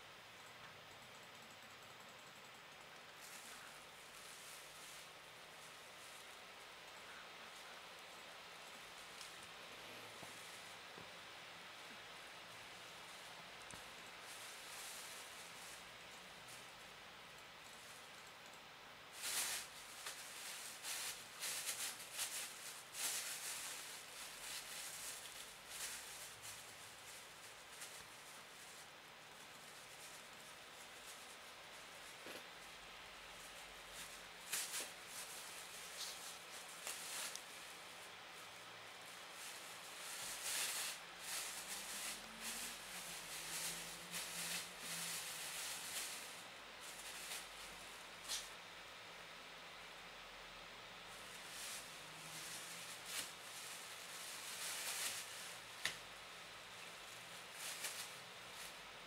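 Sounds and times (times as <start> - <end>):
plastic bag crinkling: 39.0 - 47.6.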